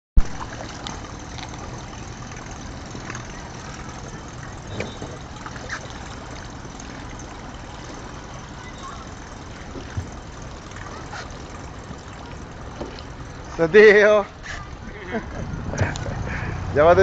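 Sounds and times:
motorboat engine humming: 0:00.2 - 0:17.0
water noise: 0:00.2 - 0:17.0.

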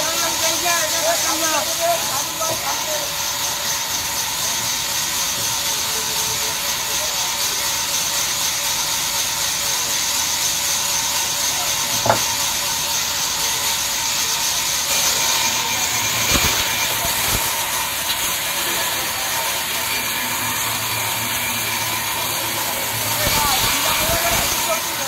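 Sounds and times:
band saw cutting a log: 0:00.0 - 0:25.0
sharp knock: 0:12.0 - 0:12.4.

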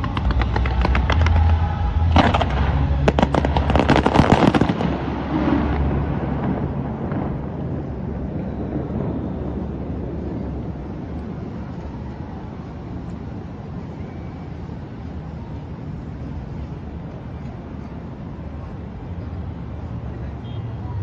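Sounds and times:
fireworks bangs and crackles: 0:00.0 - 0:13.9.

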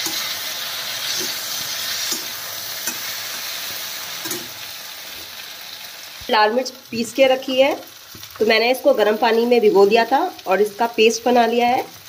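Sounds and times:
metal spatula scraping pan: 0:00.0 - 0:04.6
vegetables sizzling in a pan: 0:00.0 - 0:12.0.

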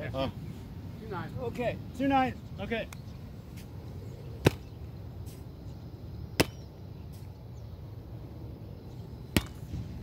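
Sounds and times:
low outdoor rumble: 0:00.0 - 0:10.0
sharp slap: 0:04.4 - 0:04.7, 0:06.4 - 0:06.6, 0:09.3 - 0:09.8.

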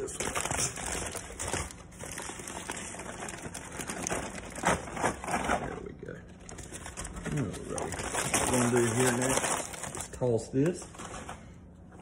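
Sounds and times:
aluminium foil crinkling: 0:00.0 - 0:05.7, 0:06.4 - 0:10.4.

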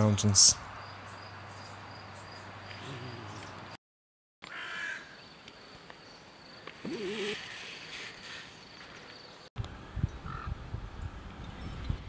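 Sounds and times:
bird harsh call: 0:04.5 - 0:05.2, 0:06.8 - 0:08.6.

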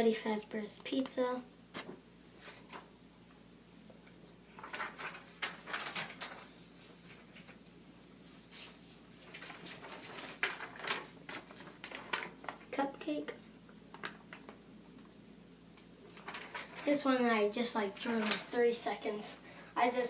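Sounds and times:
paper rustling and crinkling: 0:04.5 - 0:12.8, 0:13.9 - 0:14.6, 0:16.1 - 0:17.2, 0:17.8 - 0:18.8.

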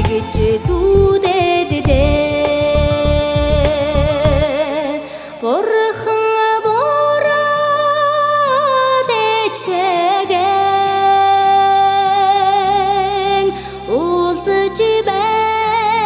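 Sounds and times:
low beat: 0:00.0 - 0:04.5
instrumental backing: 0:00.0 - 0:16.0
singing with wide vibrato: 0:00.0 - 0:16.0.

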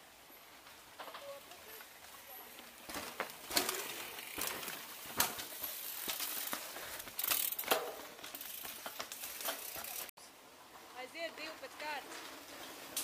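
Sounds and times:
leaves and twigs rustling: 0:00.0 - 0:13.0.

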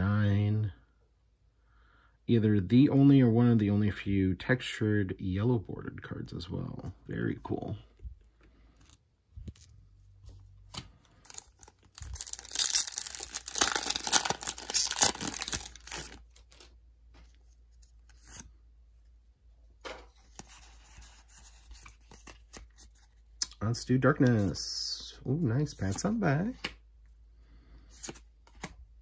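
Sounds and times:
cards sliding with soft rustling: 0:07.9 - 0:12.2, 0:15.9 - 0:19.2, 0:20.1 - 0:23.4, 0:25.6 - 0:28.8
foil wrapper tearing and crinkling: 0:11.2 - 0:16.7.

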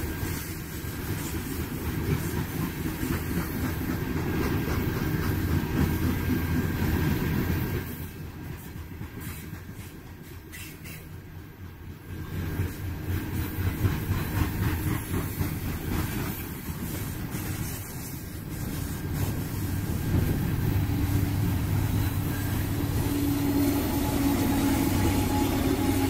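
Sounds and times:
diesel locomotive engine running: 0:00.0 - 0:26.0
train cars rolling on rails: 0:00.0 - 0:26.0.

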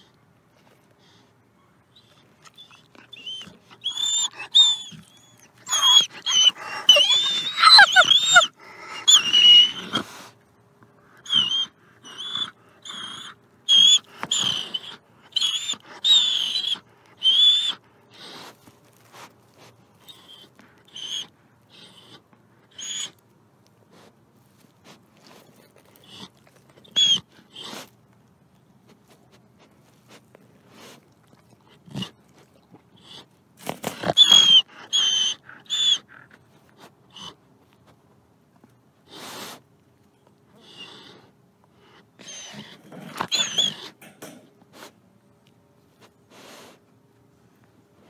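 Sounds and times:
wolf whining and squeaking: 0:01.9 - 0:10.2, 0:11.2 - 0:18.4, 0:20.0 - 0:23.2, 0:25.2 - 0:27.9, 0:30.8 - 0:37.4, 0:40.6 - 0:41.2, 0:41.8 - 0:44.4
wolf growling: 0:02.9 - 0:10.2, 0:42.2 - 0:44.4.

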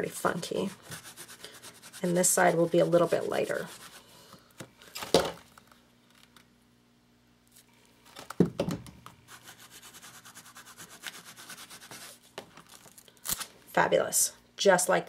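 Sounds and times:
sponge brush dabbing paint: 0:00.1 - 0:04.0, 0:09.3 - 0:12.2.

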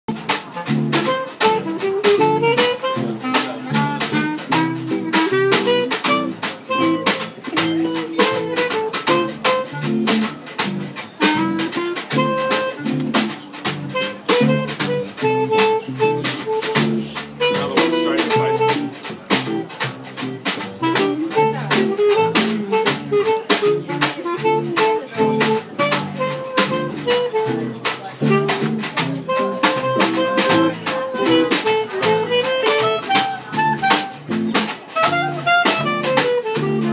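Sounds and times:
clarinet melody: 0:00.1 - 0:36.9
double bass line: 0:00.1 - 0:36.9
drum kit beat: 0:00.1 - 0:36.9
strummed guitar chords: 0:00.2 - 0:23.8.

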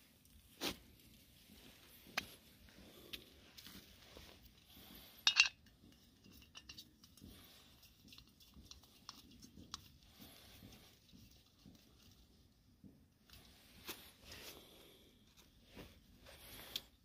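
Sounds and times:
metallic clink: 0:05.2 - 0:05.6.

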